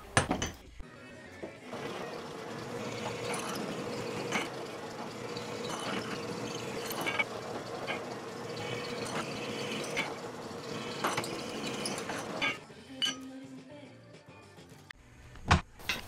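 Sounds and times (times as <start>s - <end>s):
drill press humming: 1.7s - 12.6s.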